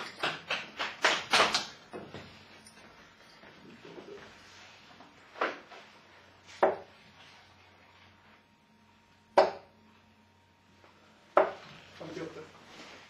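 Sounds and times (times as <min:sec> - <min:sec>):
darts striking a dartboard: 0:06.6 - 0:06.9, 0:09.4 - 0:09.7, 0:11.3 - 0:11.6.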